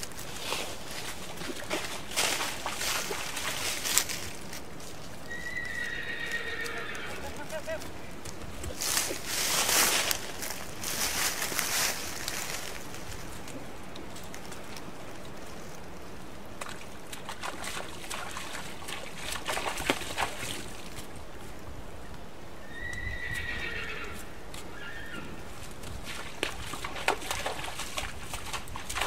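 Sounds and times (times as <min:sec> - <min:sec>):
hooves splashing in water: 0:00.0 - 0:21.6, 0:24.2 - 0:29.0
creek running: 0:00.0 - 0:29.0
horse whinnying: 0:05.3 - 0:07.4, 0:22.7 - 0:25.4.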